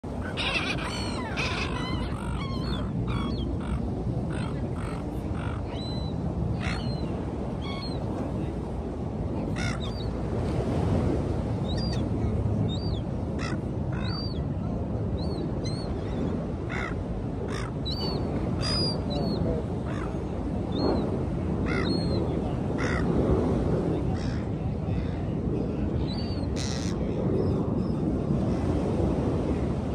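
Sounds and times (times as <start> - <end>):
wind and surf: 0.0 - 29.9
seagulls squawking: 0.2 - 8.0.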